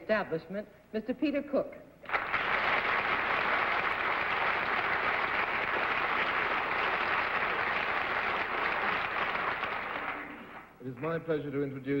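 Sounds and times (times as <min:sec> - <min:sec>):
audience applauding: 0:02.0 - 0:10.8.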